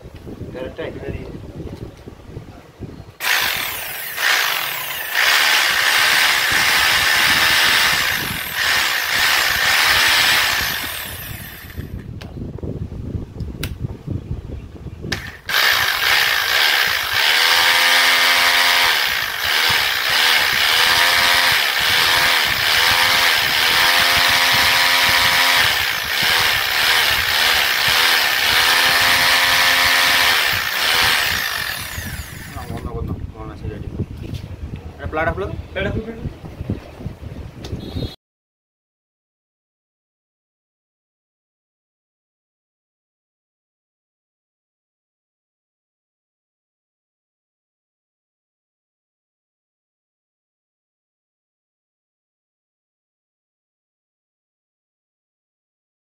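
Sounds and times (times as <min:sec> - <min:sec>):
hammer drill motor running: 0:03.2 - 0:12.0, 0:15.1 - 0:32.8.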